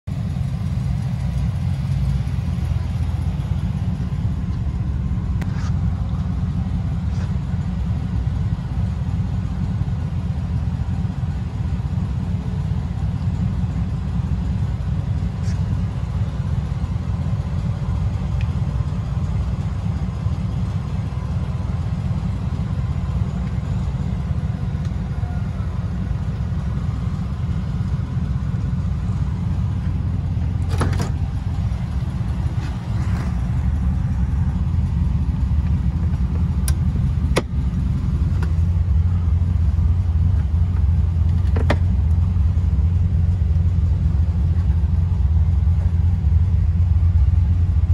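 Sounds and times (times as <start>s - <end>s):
low rumble: 0.0s - 47.9s
convertible top latching clunks: 29.7s - 33.4s, 35.6s - 38.7s, 40.3s - 42.3s.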